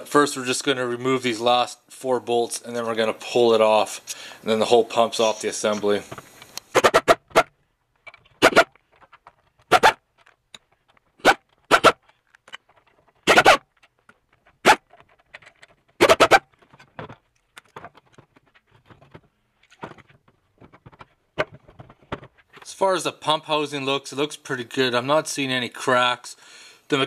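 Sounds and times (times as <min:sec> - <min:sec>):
faint clicks and handling noises: 0:07.9 - 0:22.8.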